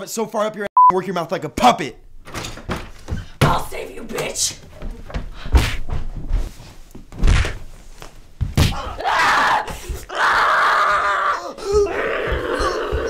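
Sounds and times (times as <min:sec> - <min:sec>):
heavy thuds of bodies in a scuffle: 0:04.8 - 0:13.0.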